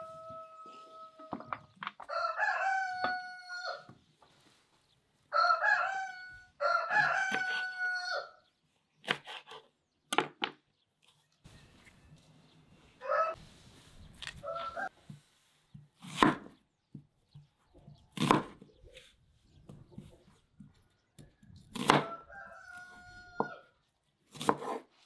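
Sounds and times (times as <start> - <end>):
rooster crowing: 0.0 - 3.9, 5.3 - 8.4, 13.0 - 13.4, 14.4 - 14.9, 21.9 - 23.7
knife chops on cutting board: 24.4 - 24.8.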